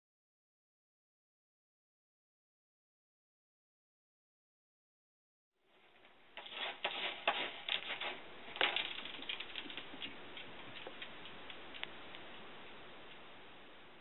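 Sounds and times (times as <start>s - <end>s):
cat scratching in pellet litter: 5.8s - 11.9s.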